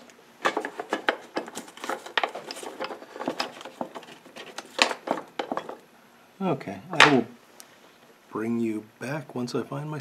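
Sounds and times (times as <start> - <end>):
small objects clicking and clattering: 0.4 - 5.8.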